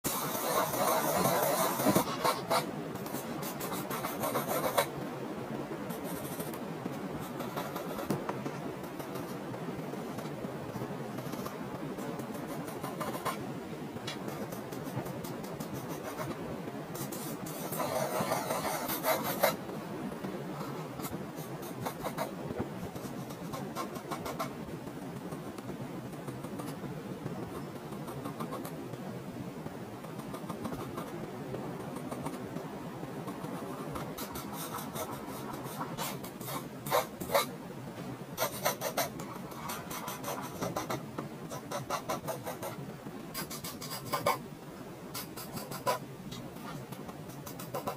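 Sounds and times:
pencil scratching on paper: 0.0s - 4.9s, 5.9s - 6.6s, 7.2s - 10.4s, 11.1s - 13.4s, 14.1s - 16.4s, 17.0s - 19.6s, 20.6s - 24.6s, 33.3s - 37.5s, 38.4s - 42.8s, 43.4s - 44.4s, 45.2s - 47.9s.

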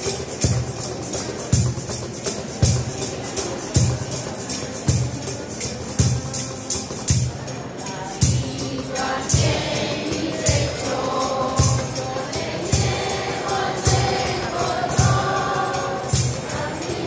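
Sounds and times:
steady percussion beat: 0.0s - 17.0s
choir singing in unison: 7.8s - 17.0s.

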